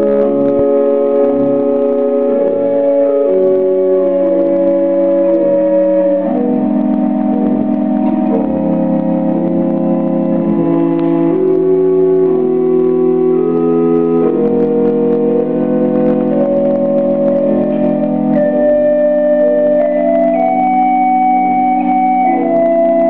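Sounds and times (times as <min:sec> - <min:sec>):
pipe organ chords: 0:00.0 - 0:23.0.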